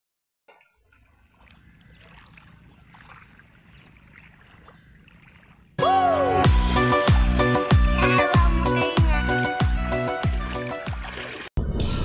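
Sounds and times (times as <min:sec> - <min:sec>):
water sloshing around swimmer: 0:00.5 - 0:05.8, 0:07.0 - 0:11.6
electronic music: 0:05.8 - 0:11.0.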